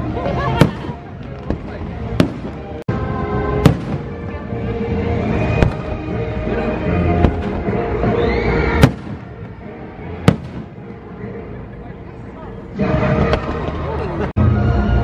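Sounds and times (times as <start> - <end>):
music over loudspeakers: 0.0 - 15.0
fireworks bursting: 0.3 - 4.4, 5.1 - 6.2, 6.9 - 11.0.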